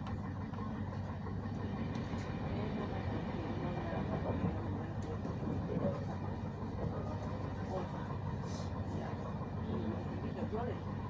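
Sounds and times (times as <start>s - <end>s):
train running rumble: 0.0s - 11.0s.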